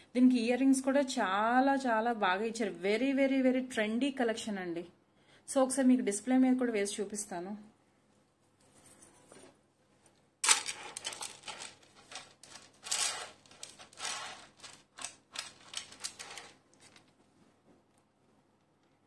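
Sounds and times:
necklace metallic clinks and rustles: 8.6 - 9.6, 10.4 - 17.1.

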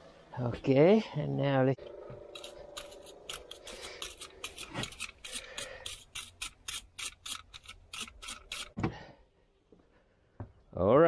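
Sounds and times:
wire brush scrubbing pipe: 2.3 - 8.8.

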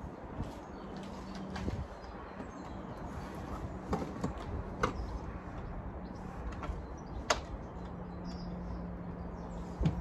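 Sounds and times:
outdoor background noise: 0.0 - 10.0.

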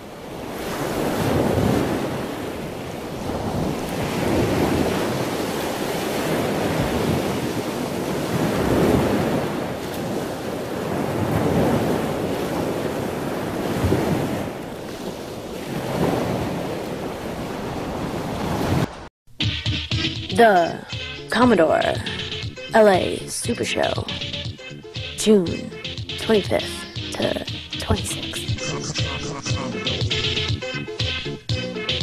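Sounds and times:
ocean surf breaking on beach: 0.0 - 19.1.

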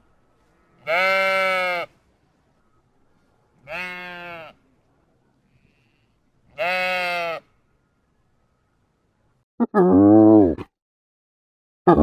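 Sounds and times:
sheep bleating: 0.8 - 1.9, 3.6 - 4.6, 6.6 - 7.5.

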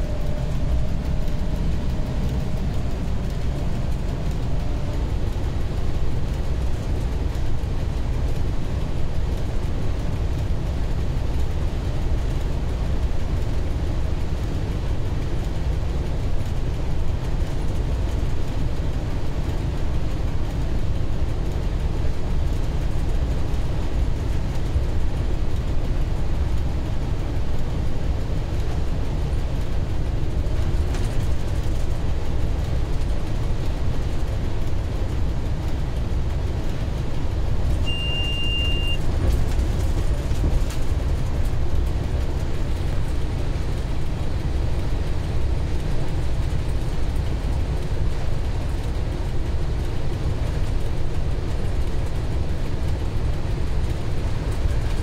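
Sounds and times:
diesel locomotive engine rumble: 0.0 - 55.0
short high-pitched beep: 37.9 - 39.0.

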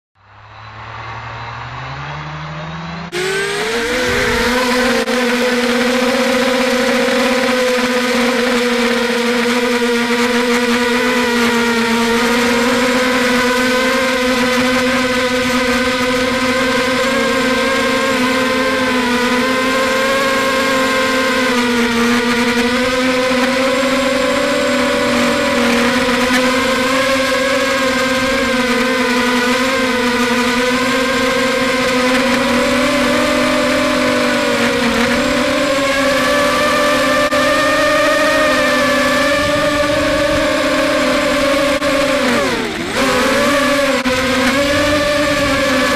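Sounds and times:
drone motors whining and humming: 0.2 - 45.9.

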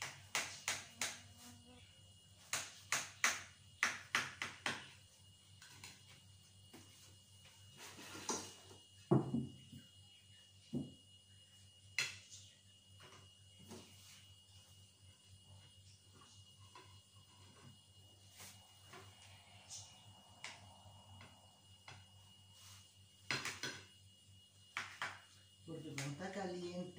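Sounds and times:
dull knock: 9.1 - 9.6.

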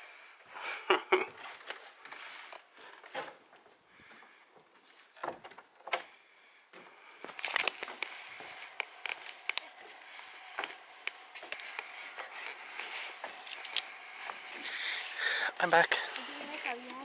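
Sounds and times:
footsteps on wooden boards: 6.7 - 15.4.

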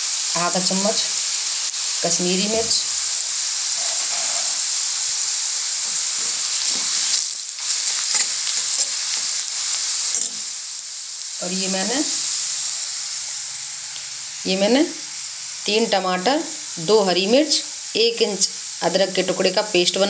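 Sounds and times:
onion and spices sizzling in oil: 0.0 - 20.0
steel spoon scraping and stirring: 3.7 - 5.1, 5.8 - 10.4.

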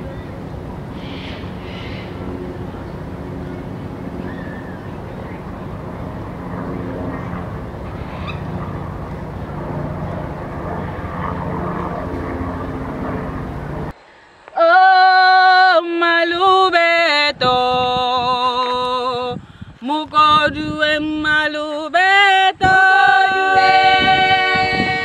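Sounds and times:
low rumbling background noise: 0.0 - 25.0
women singing unaccompanied: 14.6 - 25.0.

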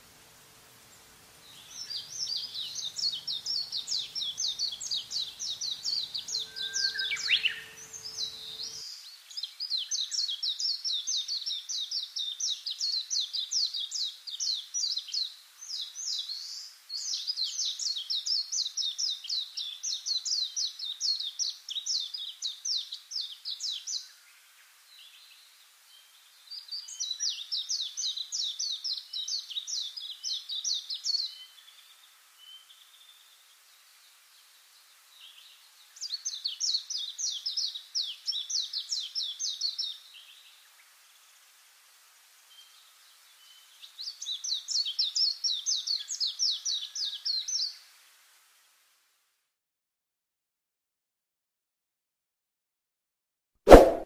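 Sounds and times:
songbird trilling: 4.5 - 8.8.

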